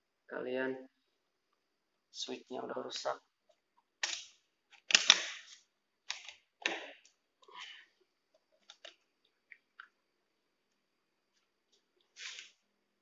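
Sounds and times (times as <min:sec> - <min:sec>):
plastic switch cracking apart: 0:04.0 - 0:05.4.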